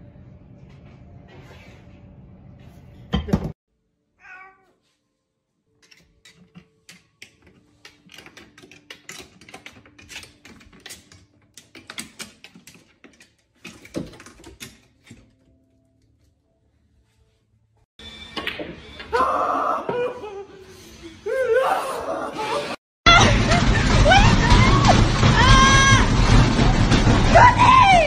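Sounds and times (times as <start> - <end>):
cat meowing: 4.2 - 4.8
loud clatter: 23.1 - 28.0
loud knock: 23.1 - 28.0.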